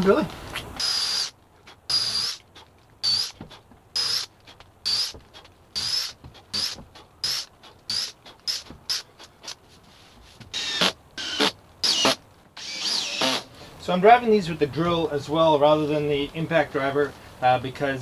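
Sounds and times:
cordless drill whining: 0.8 - 1.3, 1.9 - 2.4, 3.0 - 3.4, 4.0 - 4.3, 4.9 - 5.2, 5.8 - 9.0, 10.6 - 13.5.

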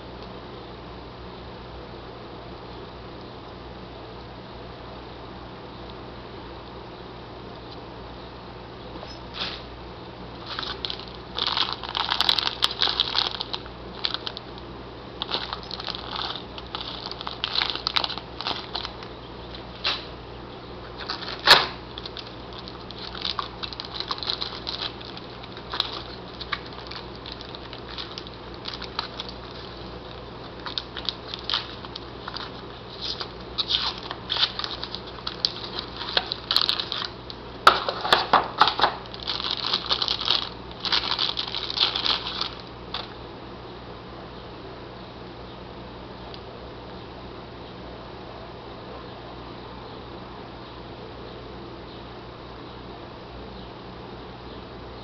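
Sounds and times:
faint low hum: 0.0 - 55.0
cardboard packing shifting: 10.4 - 14.4, 15.2 - 20.0, 21.0 - 43.2
plastic bags crinkling: 10.4 - 14.6, 15.2 - 20.1, 20.9 - 43.2.

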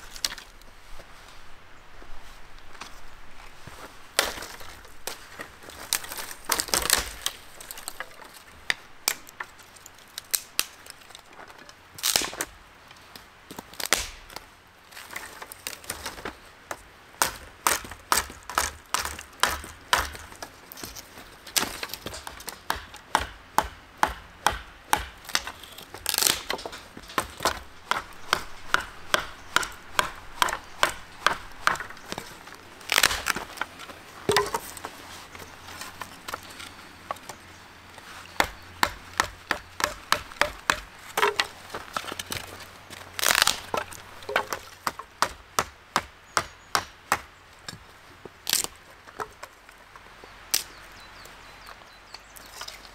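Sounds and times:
knife chopping dry branches: 4.2 - 9.3, 13.5 - 14.4, 17.2 - 37.4, 38.3 - 47.8.

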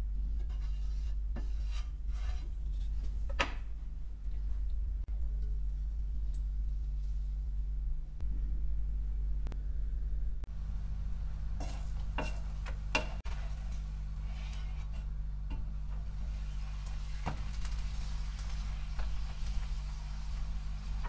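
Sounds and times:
steady low hum: 0.0 - 21.0
spatula scraping frying pan: 0.3 - 3.1, 11.6 - 17.1.

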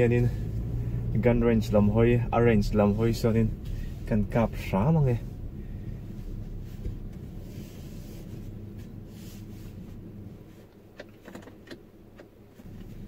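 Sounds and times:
car cabin rumble: 0.0 - 13.0.

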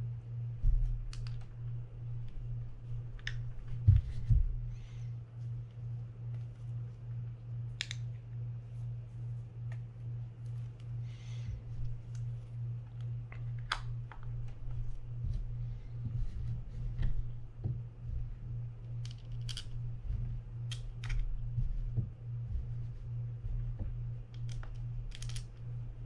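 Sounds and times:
steady low hum: 0.0 - 26.0
small parts clicking and tapping: 19.0 - 19.8, 24.3 - 25.7.

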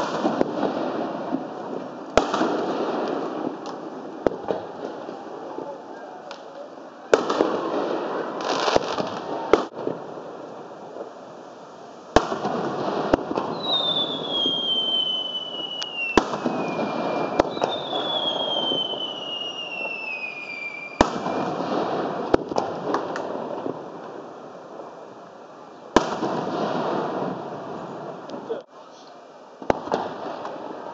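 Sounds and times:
fireworks crackling hiss: 0.0 - 30.9
firework whistle sliding down: 13.5 - 21.6.

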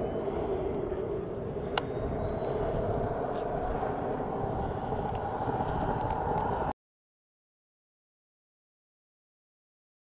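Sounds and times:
model jet turbine whine: 0.0 - 6.8.

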